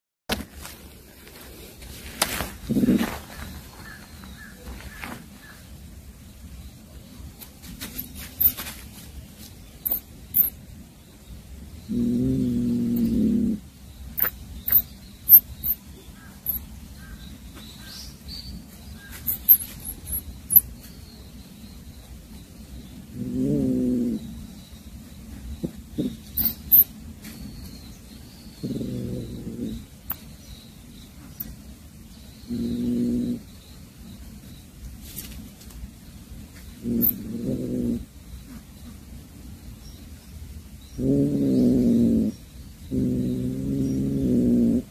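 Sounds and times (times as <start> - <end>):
mouse squeaking: 8.0 - 8.6, 9.8 - 10.6, 14.2 - 15.8, 16.4 - 16.6, 19.1 - 20.7, 26.2 - 26.9
cat growling: 11.9 - 14.3, 23.1 - 24.4, 28.6 - 29.9, 32.5 - 33.5, 36.8 - 38.1, 41.0 - 44.9.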